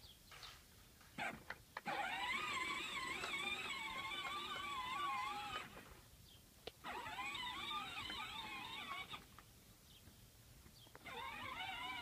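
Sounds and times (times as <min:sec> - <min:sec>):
toy tractor motor whining: 0:01.2 - 0:06.0, 0:06.8 - 0:09.3, 0:10.9 - 0:12.0.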